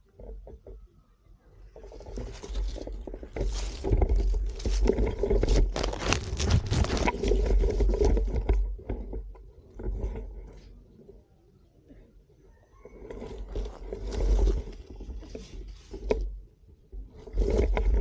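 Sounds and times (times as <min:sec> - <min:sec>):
dry leaves and grass crackling: 0:01.8 - 0:08.5, 0:13.2 - 0:16.3.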